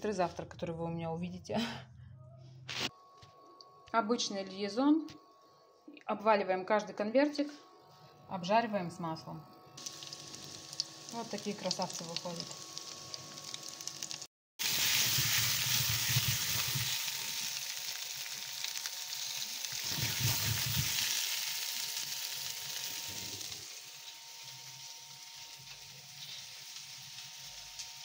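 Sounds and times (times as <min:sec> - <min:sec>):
food sizzling in hot oil: 0:09.8 - 0:28.0.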